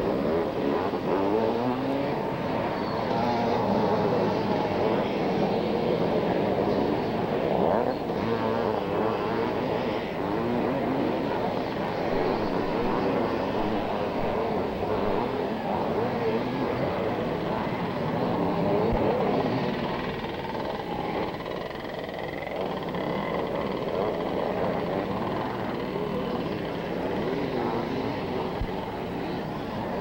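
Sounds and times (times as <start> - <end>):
motocross bikes revving: 0.0 - 30.0.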